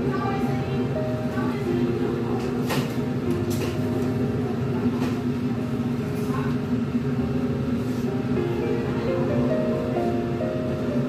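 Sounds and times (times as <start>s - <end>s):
background music with held notes: 0.0s - 5.0s, 8.3s - 11.0s.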